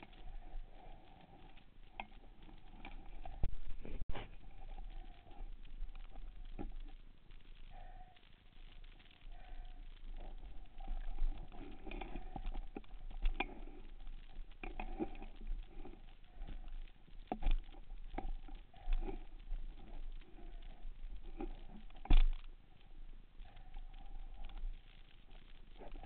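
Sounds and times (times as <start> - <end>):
underwater clicks and knocks: 10.2 - 26.0.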